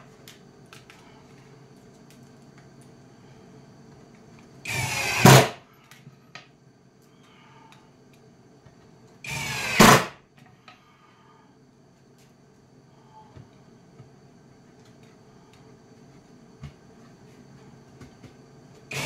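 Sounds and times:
cordless drill driving screws: 4.7 - 5.5, 9.3 - 10.1.

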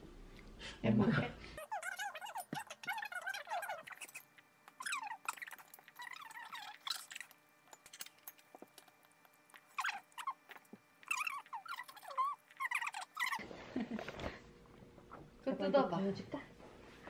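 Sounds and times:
small animal squeaky chirps: 1.6 - 8.1, 9.5 - 13.4.

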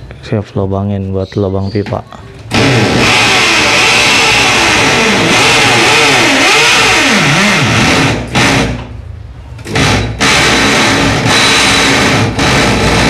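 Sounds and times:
electric drill boring through wall: 2.5 - 8.9, 9.7 - 13.0.

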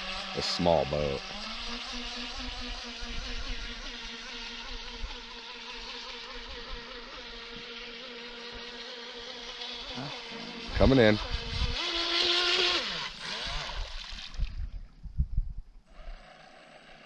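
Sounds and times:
distant toy boat motor whining: 0.0 - 14.3, 15.9 - 17.0.

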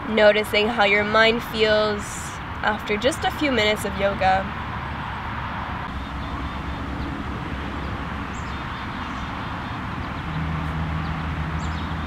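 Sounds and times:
steady low rumble: 5.6 - 11.7.

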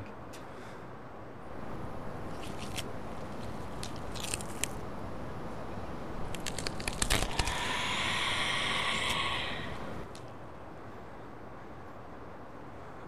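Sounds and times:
wet crunching and tearing: 2.3 - 4.8, 6.2 - 9.3
raspy zombie screech: 7.0 - 10.2.

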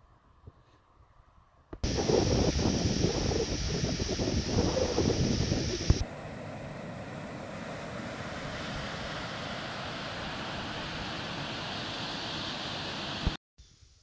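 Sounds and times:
water rushing at dam: 7.1 - 13.4.

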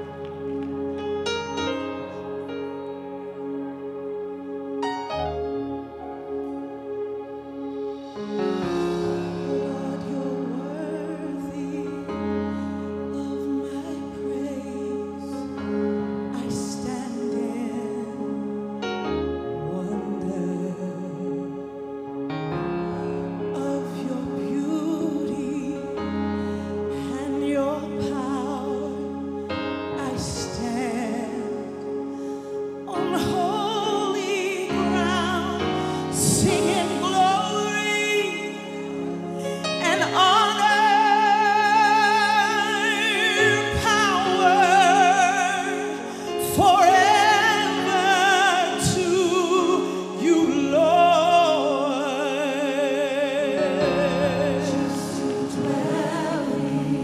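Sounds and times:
sustained chords: 0.0 - 57.0
woman singing with vibrato: 32.9 - 39.1, 39.8 - 57.0.

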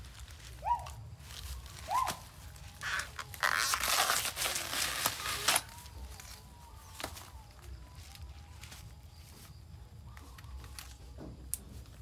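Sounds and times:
plant sheaths tearing: 0.1 - 7.2.

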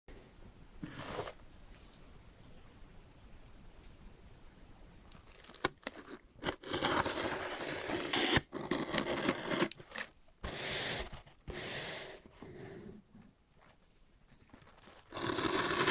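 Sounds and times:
cardboard scraping: 0.8 - 1.4, 6.0 - 13.0, 14.4 - 15.9
knife slicing packing tape: 5.6 - 10.9, 15.1 - 15.9.

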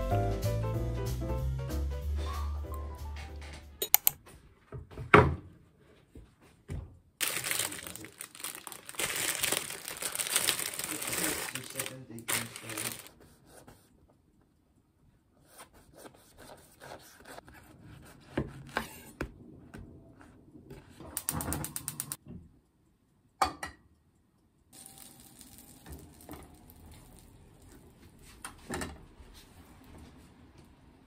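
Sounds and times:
gas burner hissing: 21.2 - 22.2.

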